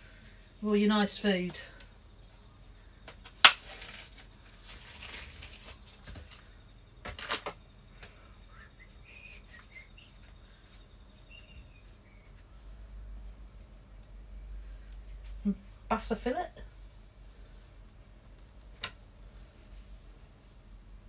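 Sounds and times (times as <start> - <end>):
rustling and handling at sink: 3.2 - 8.2.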